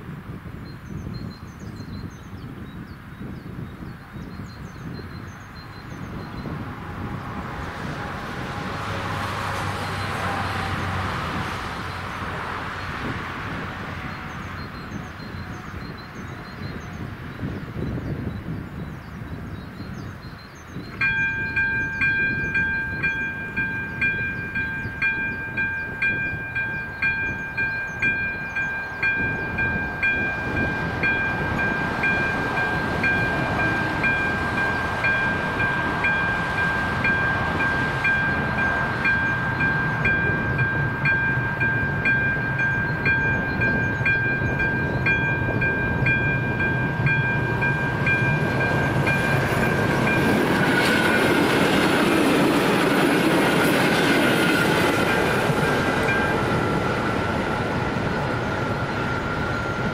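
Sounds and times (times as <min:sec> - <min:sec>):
train rumbling: 0:04.0 - 0:59.9
level crossing warning bell: 0:20.9 - 0:59.9.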